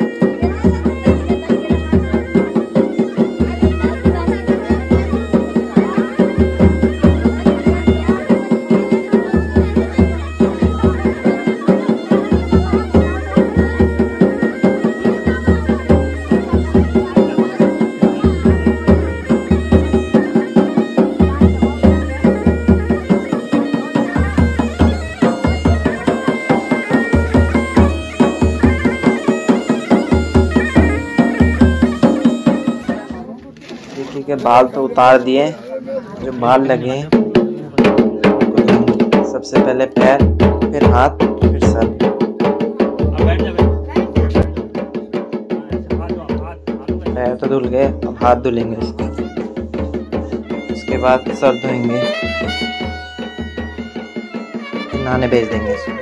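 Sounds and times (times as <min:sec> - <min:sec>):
quick drumbeat: 0:00.0 - 0:33.2, 0:36.4 - 0:56.0
wind instrument melody: 0:00.0 - 0:36.8, 0:48.3 - 0:56.0.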